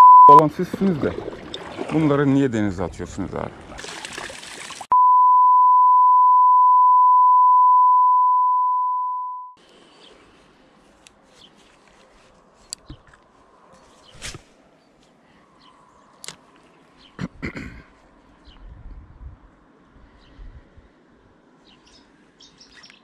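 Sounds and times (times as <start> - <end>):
censor bleep tone: 0.0 - 0.4, 4.9 - 9.6.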